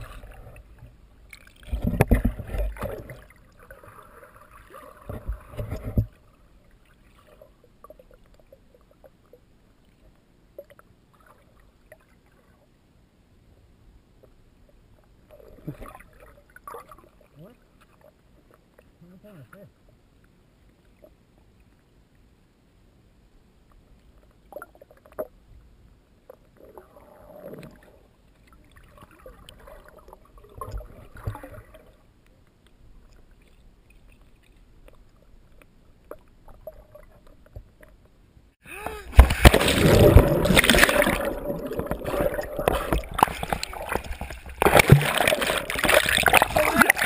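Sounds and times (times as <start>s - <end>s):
water splashing and sloshing: 0.0s - 12.7s, 14.7s - 19.0s, 26.2s - 47.0s
small underwater clicks: 32.2s - 38.2s.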